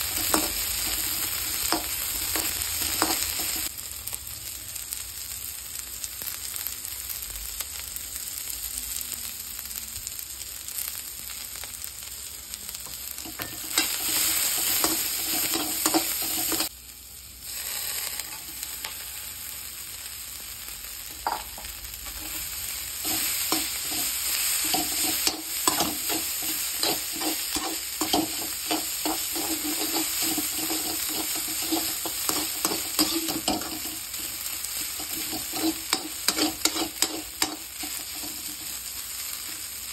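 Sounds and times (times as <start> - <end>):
food sizzling in a wok: 0.0 - 39.9
metal spatula scraping a pan: 13.2 - 16.7, 17.5 - 19.1, 21.2 - 39.1.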